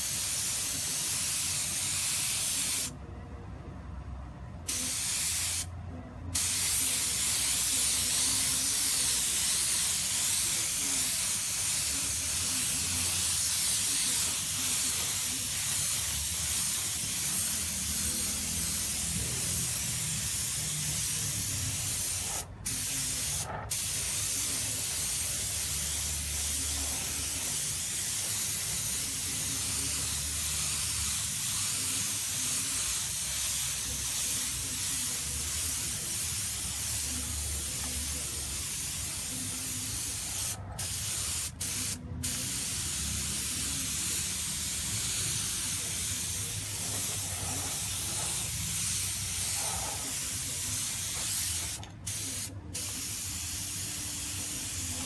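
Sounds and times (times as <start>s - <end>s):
spray gun hissing: 4.7s - 5.7s, 6.4s - 55.0s.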